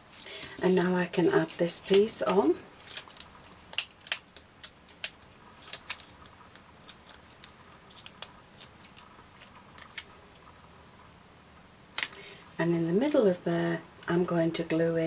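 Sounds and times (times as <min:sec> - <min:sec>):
paper clicks and crinkles: 0:00.1 - 0:10.1.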